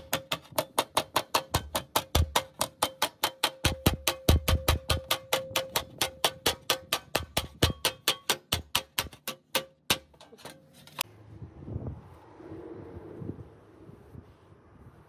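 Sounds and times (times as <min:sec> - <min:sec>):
hammer tapping sheet metal: 0:00.0 - 0:11.0.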